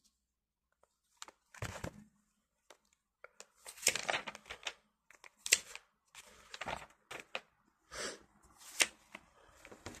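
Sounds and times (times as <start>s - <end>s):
paper pages rustling: 0.8s - 7.6s.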